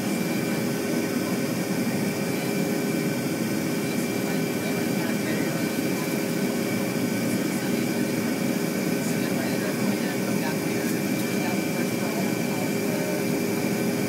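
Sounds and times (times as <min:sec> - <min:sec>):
jet engine and airflow rush: 0:00.0 - 0:14.0
steady whining tones: 0:00.0 - 0:14.0.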